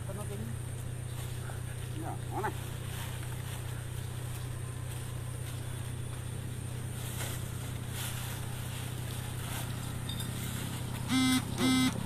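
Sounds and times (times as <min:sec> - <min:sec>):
low engine hum: 0:00.0 - 0:12.0
vehicle horn toots: 0:11.1 - 0:12.0.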